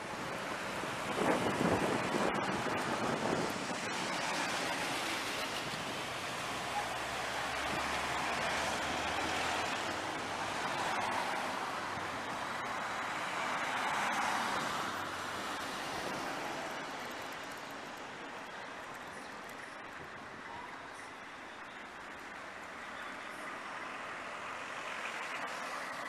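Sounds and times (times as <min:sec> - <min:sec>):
passing vehicles hiss: 0:00.0 - 0:26.0.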